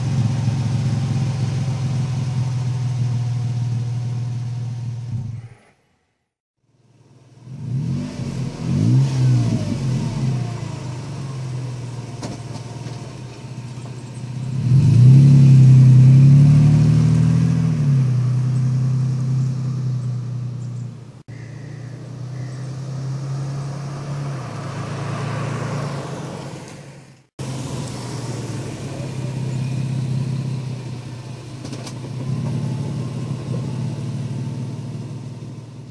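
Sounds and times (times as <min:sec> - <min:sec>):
truck engine revving: 0:07.5 - 0:35.9.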